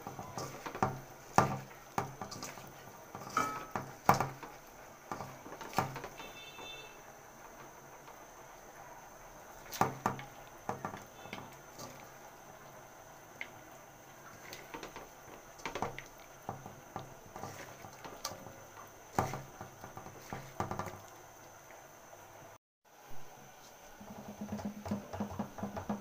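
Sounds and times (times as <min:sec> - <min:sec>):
knocks against pan: 0:24.1 - 0:26.0.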